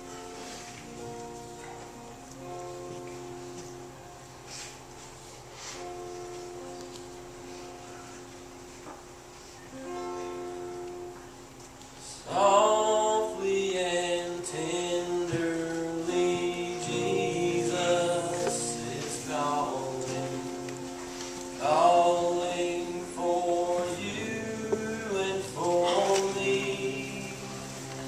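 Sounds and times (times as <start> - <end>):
acoustic guitar: 0.0 - 28.0
piano: 0.0 - 28.0
man singing: 12.2 - 20.8, 21.6 - 28.0.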